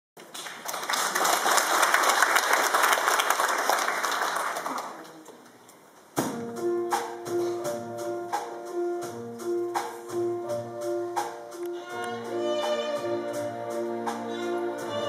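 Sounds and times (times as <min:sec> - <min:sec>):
audience applauding: 0:00.2 - 0:05.2
string ensemble playing: 0:07.7 - 0:15.0.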